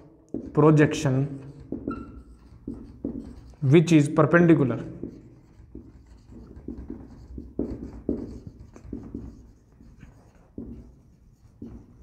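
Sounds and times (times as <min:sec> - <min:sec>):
pen strokes on writing surface: 0:05.0 - 0:12.0.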